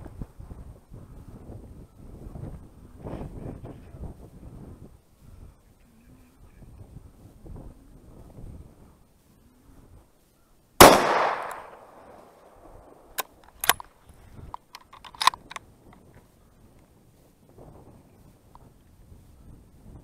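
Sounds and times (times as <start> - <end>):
rifle shot with echo: 10.8 - 13.8
rifle bolt metallic clicks: 10.8 - 15.6.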